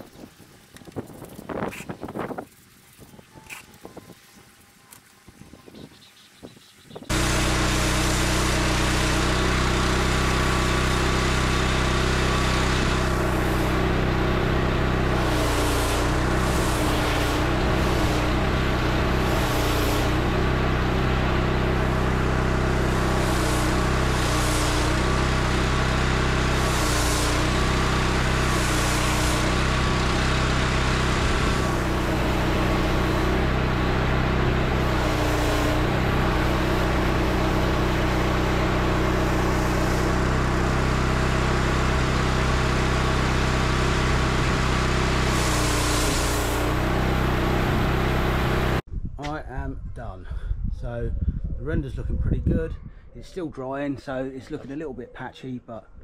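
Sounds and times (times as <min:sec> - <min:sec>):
high-pressure water spray hissing: 0:07.1 - 0:48.8
pressure washer engine running: 0:07.1 - 0:48.8.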